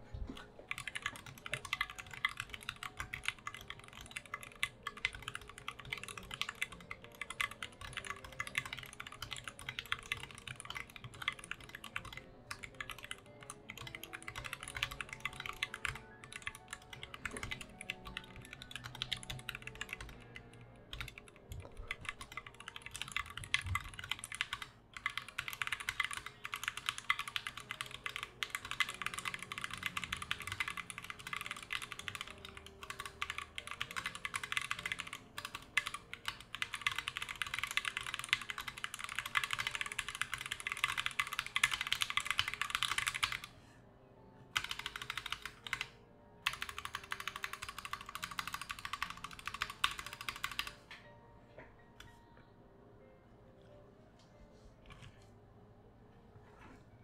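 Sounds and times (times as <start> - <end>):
fast typing on mechanical keyboard: 0.3 - 43.5, 44.6 - 50.9.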